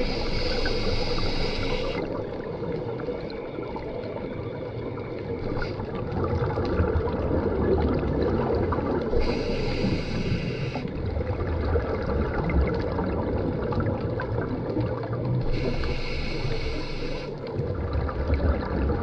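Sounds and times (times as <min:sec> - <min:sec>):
scuba regulator breathing: 0:00.0 - 0:02.1, 0:05.5 - 0:05.9, 0:09.1 - 0:11.0, 0:15.4 - 0:17.4
bubbly rumble underwater: 0:00.0 - 0:19.0.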